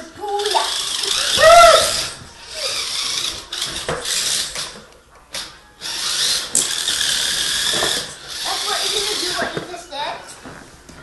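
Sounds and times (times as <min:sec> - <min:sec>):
toy truck motor whirring: 0:00.3 - 0:04.8, 0:05.4 - 0:09.6.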